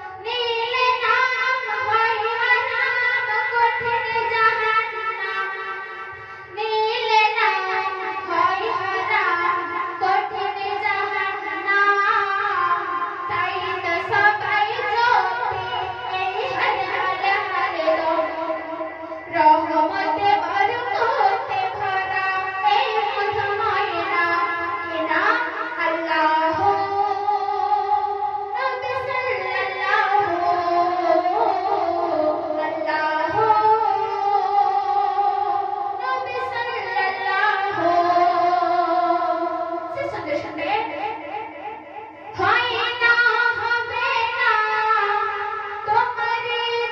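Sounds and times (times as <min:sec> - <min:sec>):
woman singing devotional song: 0:00.0 - 0:46.9.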